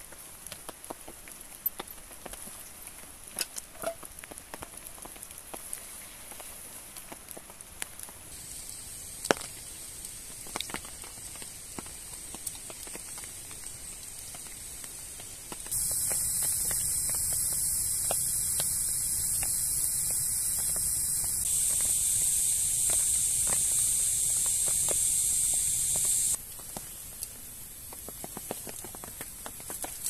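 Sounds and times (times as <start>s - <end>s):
fire crackle: 0.0s - 30.0s
steam hissing from burning log: 5.1s - 30.0s.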